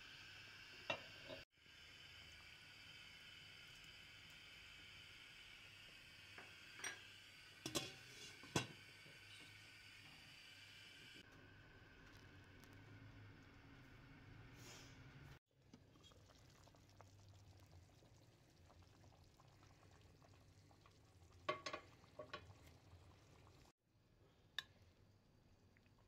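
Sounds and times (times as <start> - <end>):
food simmering in sauce: 8.8 - 23.8.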